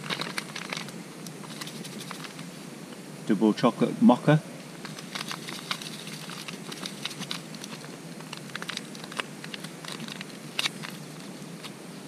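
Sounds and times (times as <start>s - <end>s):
foil sachet crinkling: 0.0s - 2.5s, 4.8s - 11.8s.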